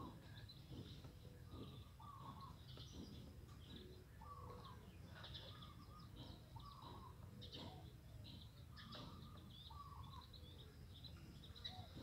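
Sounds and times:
faint bird chirps: 0:00.0 - 0:12.0.

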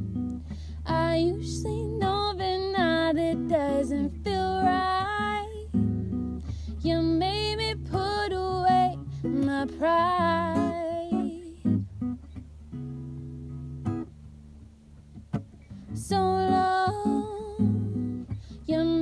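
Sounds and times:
acoustic guitar: 0:00.0 - 0:19.0
person singing: 0:16.0 - 0:17.9.

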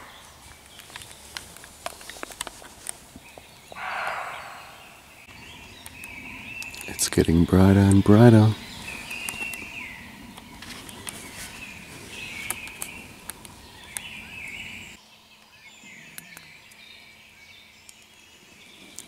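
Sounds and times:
deer calling: 0:03.7 - 0:05.3.

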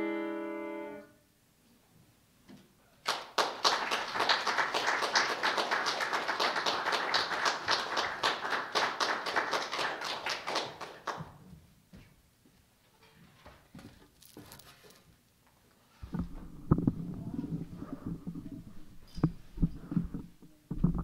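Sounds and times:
small audience applauding: 0:03.0 - 0:11.4.

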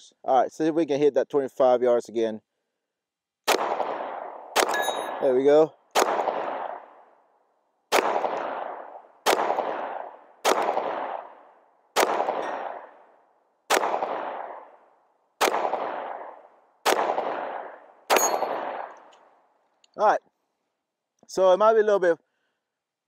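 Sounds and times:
pistol shots echoing: 0:03.4 - 0:07.1, 0:07.9 - 0:19.1.

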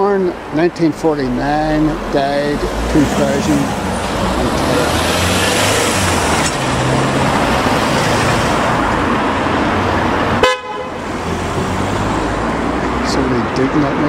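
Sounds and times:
road traffic passing: 0:00.0 - 0:14.0
car horn toot: 0:10.4 - 0:11.0.

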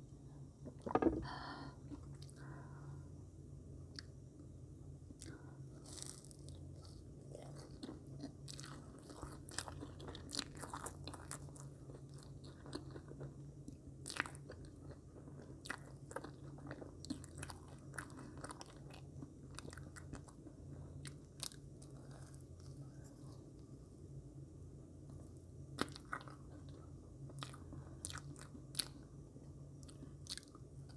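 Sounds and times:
steady low hum: 0:00.0 - 0:30.9
person chewing marshmallows: 0:05.1 - 0:23.8, 0:25.1 - 0:29.2, 0:29.8 - 0:30.9.

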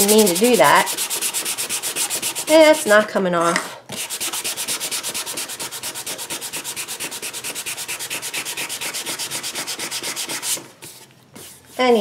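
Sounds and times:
sandpaper rubbing on wood: 0:00.0 - 0:02.7, 0:04.0 - 0:10.7.

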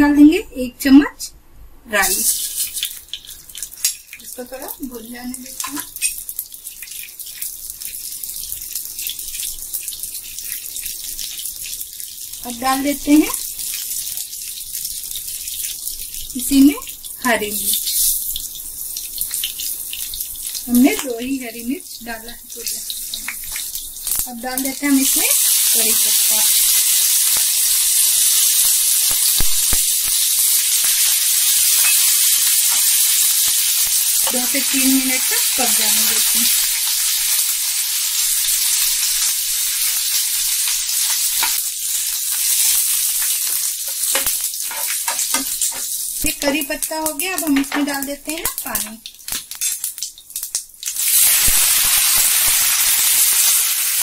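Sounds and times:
spices sizzling in hot oil: 0:02.0 - 0:54.0
crackling pops: 0:28.6 - 0:30.9, 0:43.2 - 0:52.7.

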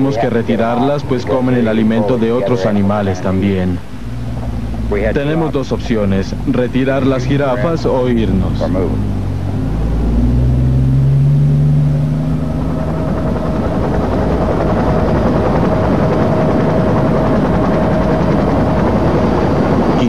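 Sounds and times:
helicopter engine and rotor: 0:00.0 - 0:09.7, 0:11.9 - 0:20.0
high whine: 0:00.0 - 0:20.0.

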